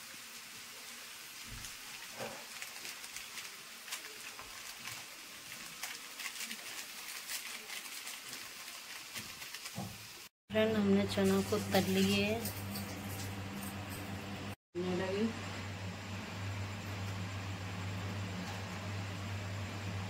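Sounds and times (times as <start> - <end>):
chickpeas sizzling in oil: 0.0 - 10.3, 11.0 - 13.4.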